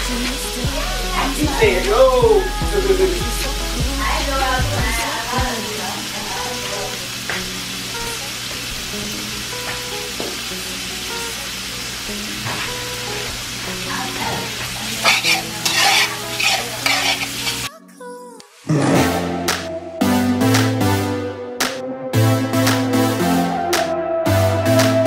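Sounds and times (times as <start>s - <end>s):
bacon sizzling in a pan: 0.0s - 17.7s
utensil scraping a pan: 14.2s - 17.7s.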